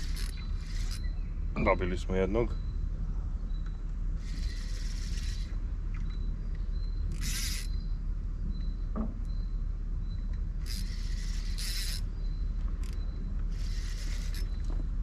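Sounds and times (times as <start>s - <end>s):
fishing reel buzzing: 0.0s - 1.1s, 4.2s - 5.6s, 7.1s - 7.8s, 10.6s - 12.1s, 12.8s - 14.7s.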